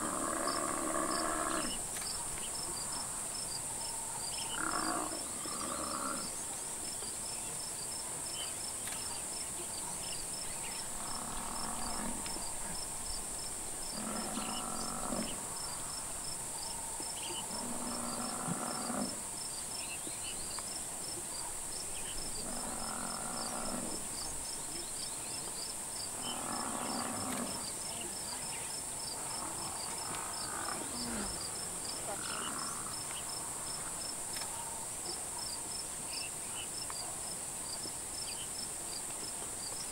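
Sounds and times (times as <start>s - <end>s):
insect drone and chirping: 0.0s - 39.9s
buffalo bellowing: 13.9s - 15.4s.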